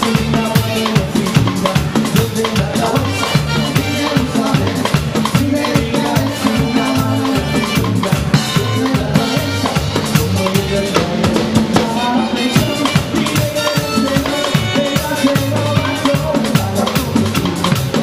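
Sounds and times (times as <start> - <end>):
bass line: 0.0 - 18.0
steady drum beat: 0.0 - 18.0.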